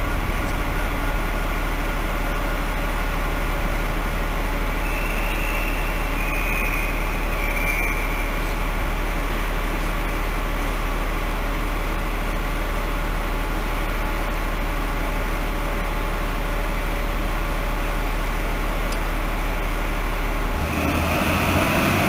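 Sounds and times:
diesel locomotive engine droning: 0.0s - 22.0s.

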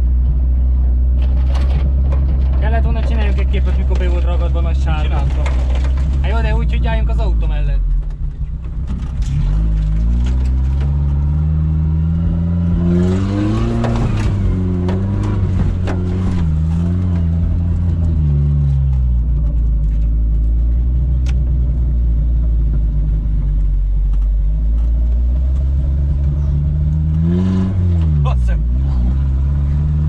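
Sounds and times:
car engine revving: 0.0s - 30.0s
knocks and rattles: 1.0s - 7.2s, 7.8s - 20.8s.

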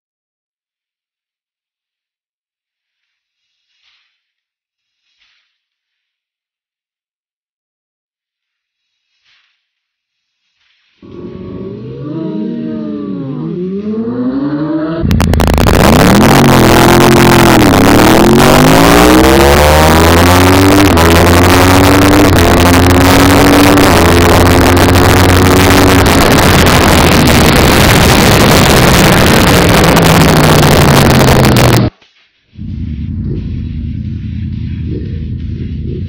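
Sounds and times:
motorcycle engine accelerating: 11.0s - 36.0s
wind noise on microphone: 15.0s - 31.9s.

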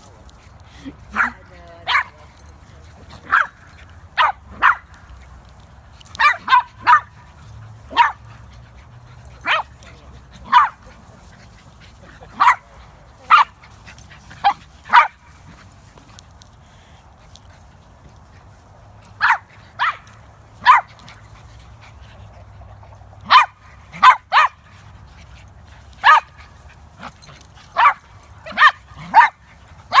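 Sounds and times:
small dogs yapping: 6.1s - 9.8s, 19.1s - 21.5s, 23.2s - 24.8s, 25.9s - 30.0s.

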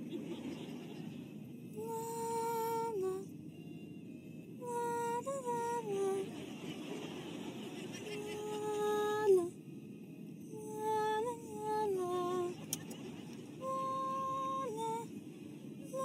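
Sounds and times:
woman humming a slow tune: 1.7s - 6.3s, 8.2s - 9.6s, 10.4s - 12.6s, 13.6s - 15.1s.

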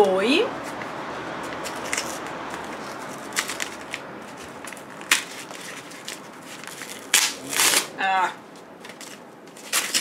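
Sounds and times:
paper crackling and ripping: 1.6s - 7.9s, 8.8s - 10.0s.

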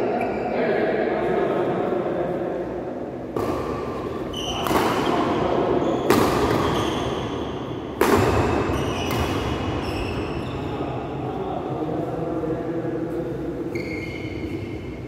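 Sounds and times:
shoes squeaking on court: 4.2s - 7.6s, 8.6s - 10.8s, 13.7s - 15.0s
racket striking shuttlecock: 4.6s - 5.3s, 6.1s - 6.8s, 7.9s - 9.6s.

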